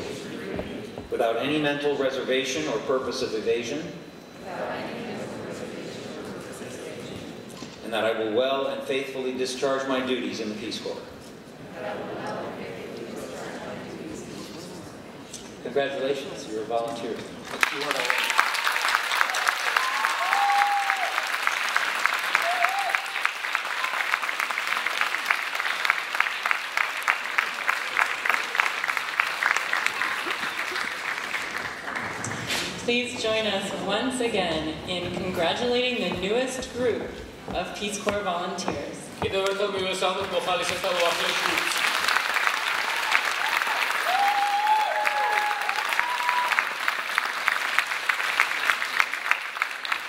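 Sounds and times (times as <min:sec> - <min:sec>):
audience applause: 0:17.4 - 0:32.8, 0:40.3 - 0:50.0.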